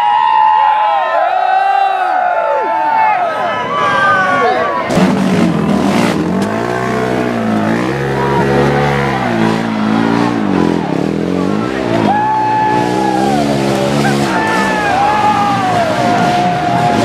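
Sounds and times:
spectators' voices: 0.0s - 17.0s
atv engine revving: 4.8s - 17.0s.

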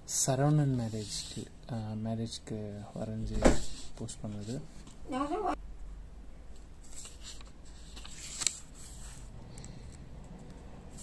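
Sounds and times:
notebook paper rustling: 6.8s - 9.3s.

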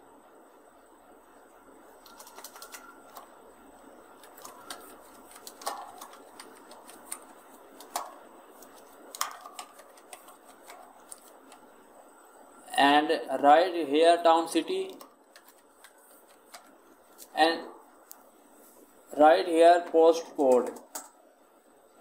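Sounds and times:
keyboard typing clicks: 2.0s - 3.4s, 4.2s - 11.7s, 14.9s - 16.8s.

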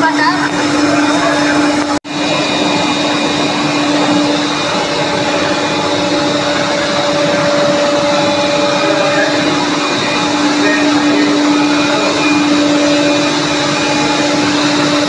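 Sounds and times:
higher machine tone: 0.0s - 15.0s
woodworking machinery whirring: 0.0s - 15.0s.

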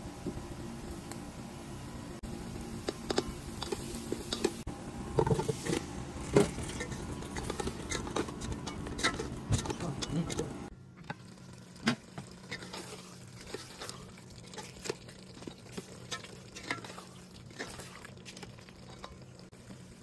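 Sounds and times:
spatula scraping a pot: 5.2s - 10.5s, 12.4s - 19.2s.

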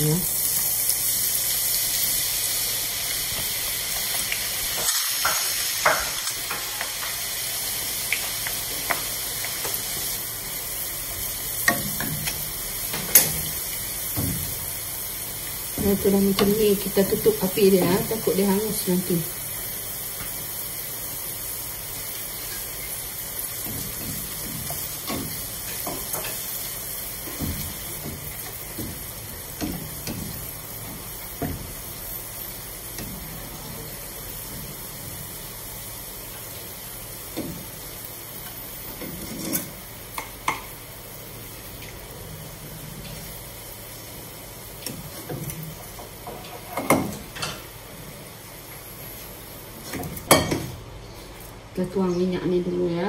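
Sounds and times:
shallots sizzling in hot oil: 0.0s - 53.0s
wooden spatula scraping wok: 38.8s - 39.9s.

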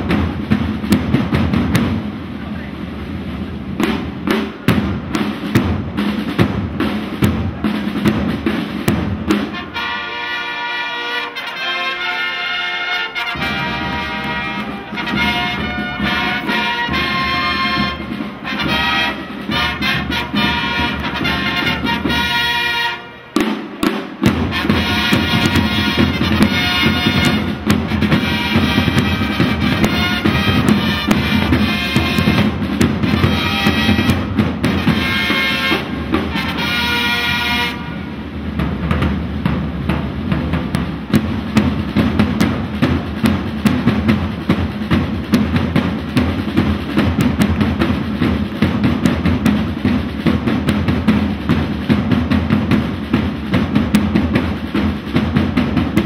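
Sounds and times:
drums beating: 0.0s - 56.0s
trumpets playing march: 3.8s - 38.7s.

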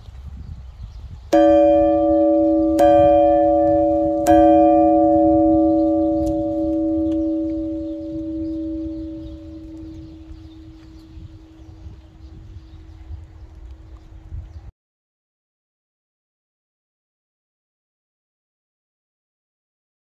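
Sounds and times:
bell struck and ringing: 1.4s - 11.4s.

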